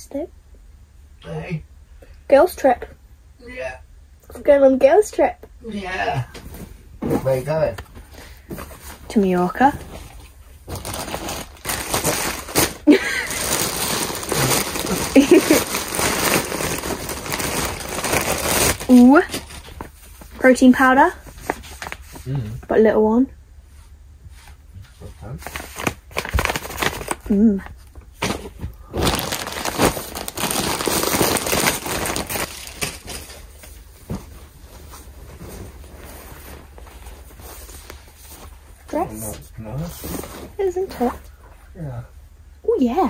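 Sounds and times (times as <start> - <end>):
plastic bag crinkling: 9.9 - 20.0, 25.4 - 27.5, 28.2 - 33.6
plastic bag ripping: 10.7 - 19.8, 25.4 - 27.5, 28.2 - 33.4.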